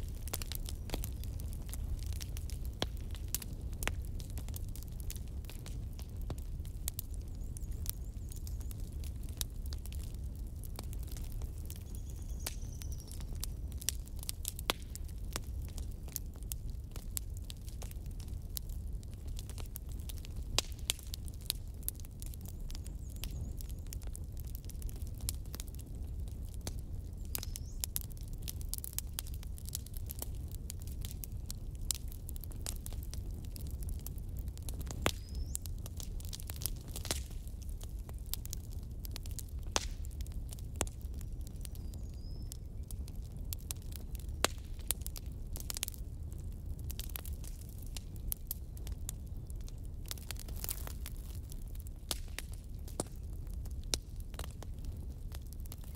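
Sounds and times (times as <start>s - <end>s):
light crackling clicks: 34.8s - 37.4s, 39.1s - 42.2s.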